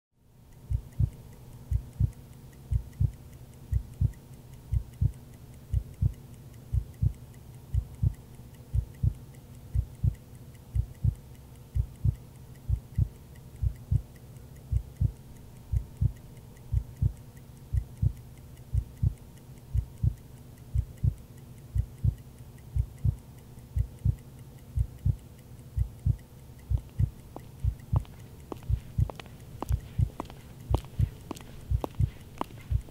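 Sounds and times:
faint steady hum: 0.2s - 32.9s
heartbeat thumps: 0.7s - 1.1s, 1.7s - 2.1s, 2.7s - 3.2s, 3.8s - 4.1s, 4.7s - 5.2s, 5.8s - 7.2s, 7.8s - 9.2s, 9.8s - 10.2s, 10.8s - 11.2s, 11.8s - 14.1s, 14.7s - 21.2s, 21.8s - 22.2s, 22.8s - 23.2s, 23.8s - 24.2s, 24.8s - 25.2s, 25.8s - 32.9s.

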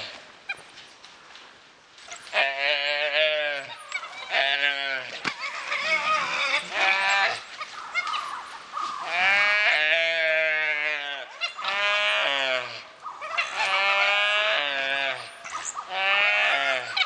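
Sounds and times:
calf bleating: 2.2s - 8.3s, 9.0s - 12.8s, 13.4s - 17.0s.

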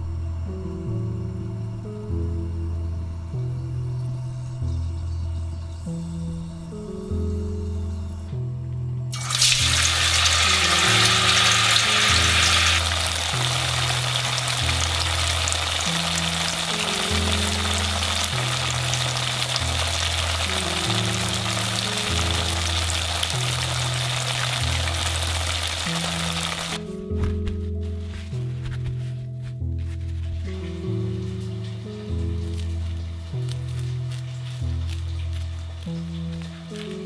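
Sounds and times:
background music with low notes: 0.0s - 37.0s
tofu sizzling in hot oil: 9.1s - 26.8s.

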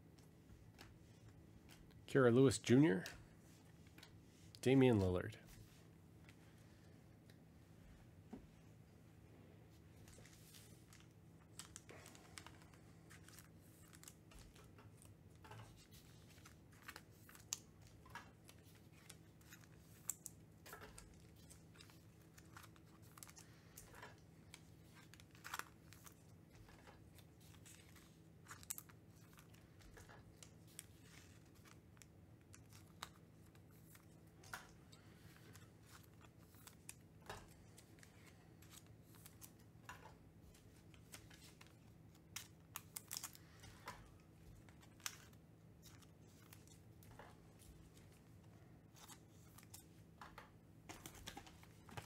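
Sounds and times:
trading cards being shuffled: 10.0s - 48.3s.

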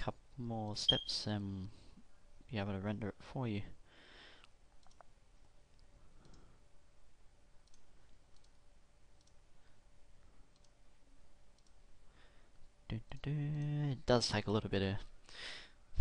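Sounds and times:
faint steady hum: 0.0s - 16.0s
computer mouse clicks: 4.8s - 5.1s, 5.7s - 6.5s, 7.6s - 8.6s, 9.2s - 9.4s, 10.5s - 10.8s, 11.5s - 11.8s.

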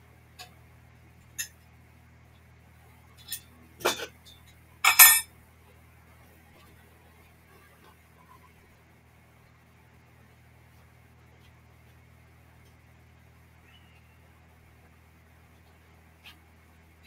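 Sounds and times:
metal clinks and clanks: 3.3s - 5.3s.

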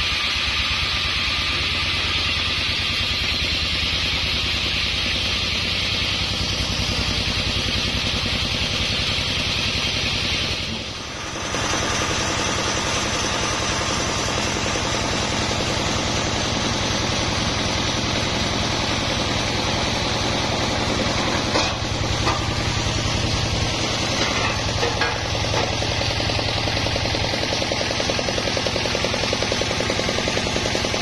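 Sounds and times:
sawmill engine running: 0.0s - 31.0s.

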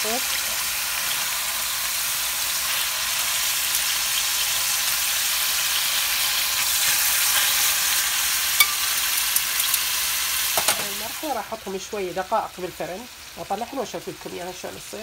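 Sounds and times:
chicken sizzling in a pan: 0.0s - 15.0s
tongs clicking against pan: 8.6s - 9.9s.

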